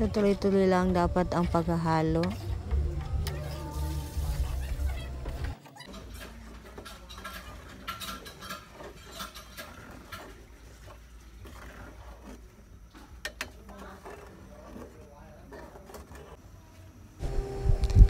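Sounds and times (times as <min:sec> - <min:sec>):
metal ladle scraping pan: 0:05.8 - 0:12.0.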